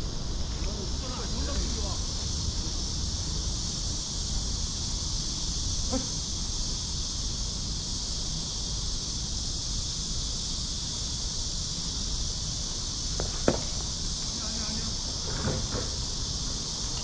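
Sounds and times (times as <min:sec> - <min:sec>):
high insect buzz: 0:00.0 - 0:17.0
sharp knock: 0:13.2 - 0:13.9.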